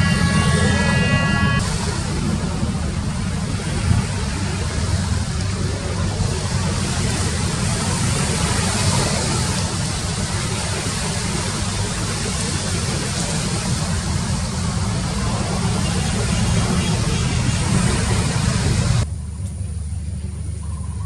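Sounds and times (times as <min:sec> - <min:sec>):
ship engines rumbling: 0:00.0 - 0:21.0.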